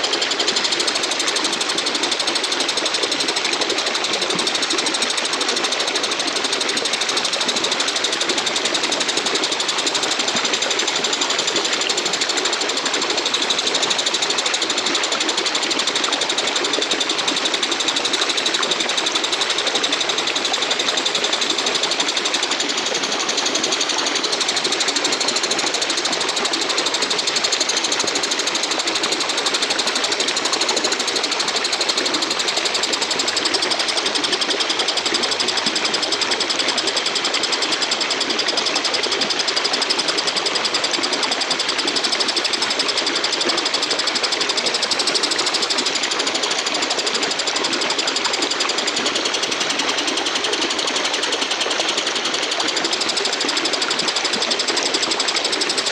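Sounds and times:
bush cricket buzzing trill: 0:00.0 - 0:55.9.

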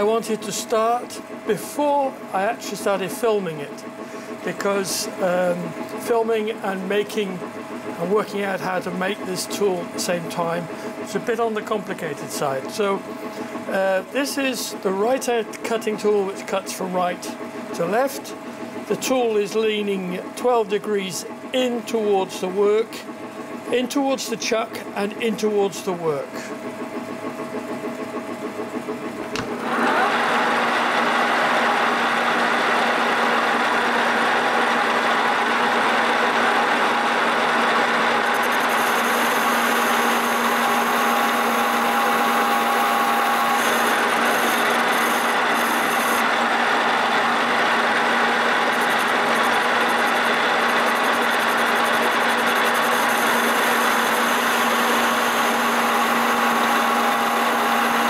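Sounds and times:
metal lathe whining: 0:29.1 - 0:58.0
lathe switch click: 0:29.3 - 0:29.6
cutting tool turning metal bar: 0:35.9 - 0:58.0.

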